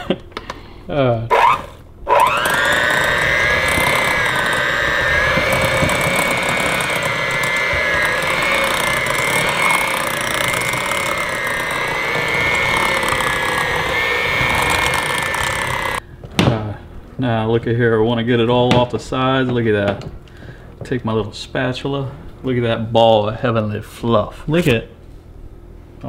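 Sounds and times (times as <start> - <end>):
electric hand mixer whining: 1.3 - 16.0.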